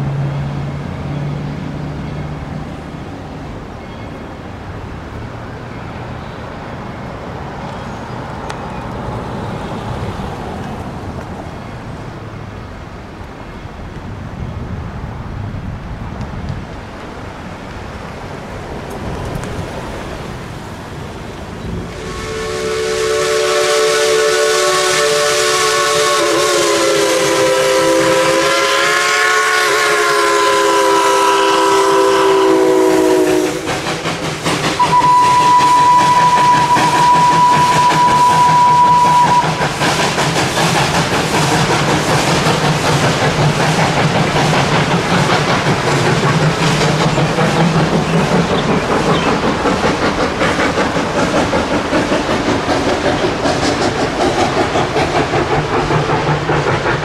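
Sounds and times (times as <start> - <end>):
train cars rumbling over trestle: 0.0 - 57.0
single-note train whistle: 21.9 - 33.7, 34.8 - 39.7
steam locomotive chime whistle: 21.9 - 33.8, 34.8 - 39.8.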